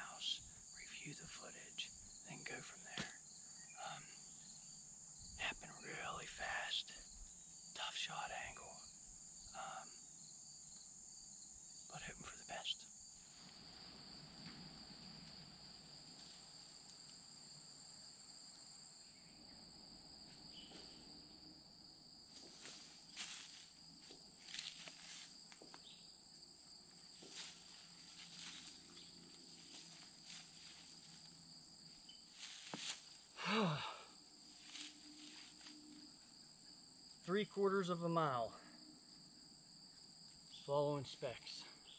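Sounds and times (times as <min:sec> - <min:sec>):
insect chorus: 0:00.0 - 0:41.9
rustling dry grass and leaves: 0:22.3 - 0:26.0, 0:26.8 - 0:36.2.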